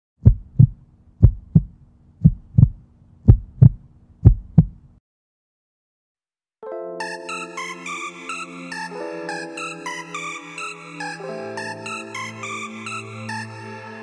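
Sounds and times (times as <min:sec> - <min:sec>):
faint low hum: 0:00.2 - 0:05.0
heartbeat double thumps: 0:00.2 - 0:05.0.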